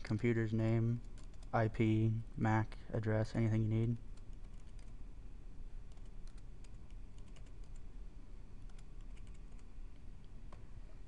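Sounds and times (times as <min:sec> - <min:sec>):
low steady hum: 0:00.0 - 0:11.0
keyboard and mouse clicks: 0:05.9 - 0:07.8, 0:08.7 - 0:10.6.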